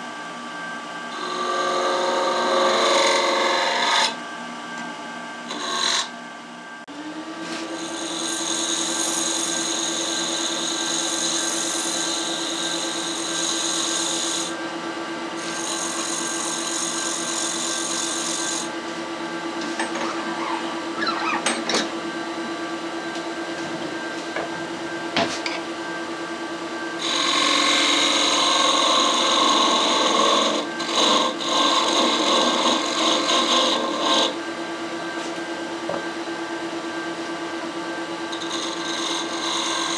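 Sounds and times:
turning tool cutting wood: 1.1s - 4.2s, 5.5s - 6.1s, 7.4s - 14.6s, 15.4s - 18.7s, 27.0s - 34.4s, 38.3s - 39.9s
wood lathe whining: 1.1s - 4.2s, 5.5s - 6.1s, 6.9s - 14.6s, 15.4s - 18.7s, 27.0s - 34.4s, 38.1s - 39.9s.

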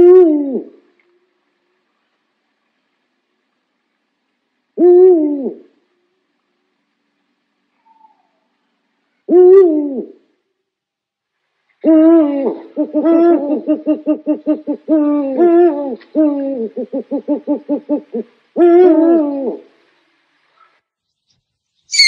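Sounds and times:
owl hooting: 0.0s - 0.8s, 4.8s - 5.7s, 7.8s - 8.5s, 9.3s - 10.2s, 11.8s - 19.8s.

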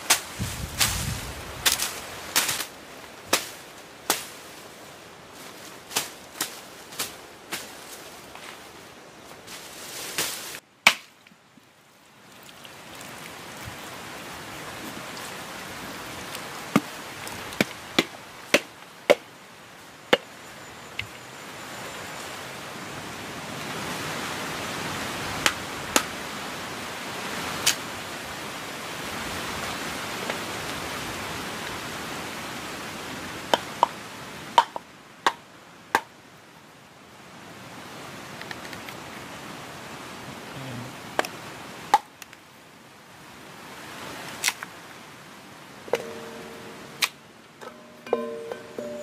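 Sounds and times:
steady rushing hiss: 0.0s - 10.7s
coconut shell being struck: 10.9s - 11.1s, 45.9s - 49.0s.

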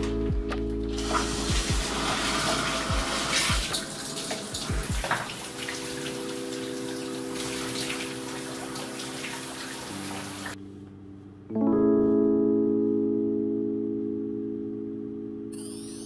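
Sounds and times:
held keyboard chords: 0.0s - 16.0s
shower water spraying: 0.9s - 10.6s.

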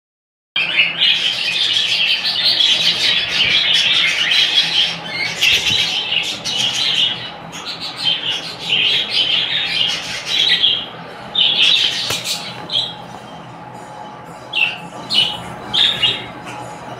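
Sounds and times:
small parrots chattering and squawking: 0.6s - 13.4s, 14.5s - 16.9s.

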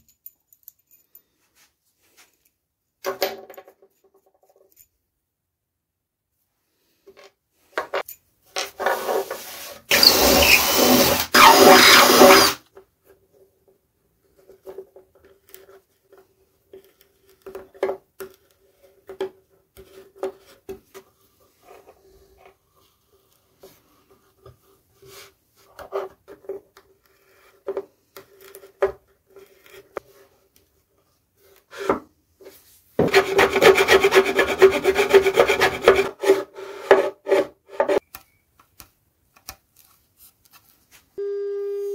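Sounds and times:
metal insert rasping into wood: 9.9s - 12.6s, 33.0s - 38.0s.

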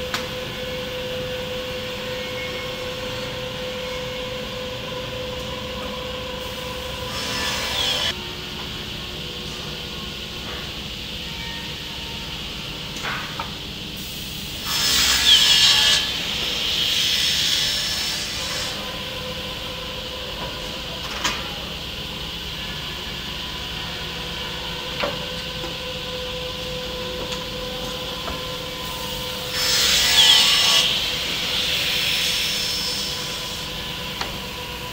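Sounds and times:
saw cutting through planks: 7.0s - 8.1s, 14.6s - 18.9s, 29.3s - 33.4s
wood saw humming: 24.6s - 34.9s.

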